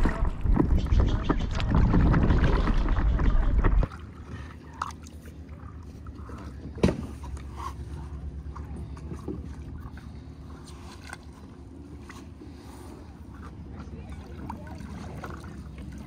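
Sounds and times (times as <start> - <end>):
wind buffeting microphone: 0.0 - 3.9
paddle stroking through water: 0.0 - 16.0.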